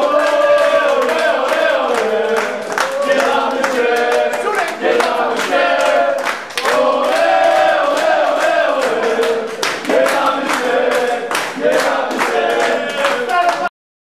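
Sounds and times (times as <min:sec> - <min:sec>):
hands clapping in time: 0:00.0 - 0:13.7
men singing a chant: 0:00.0 - 0:13.7.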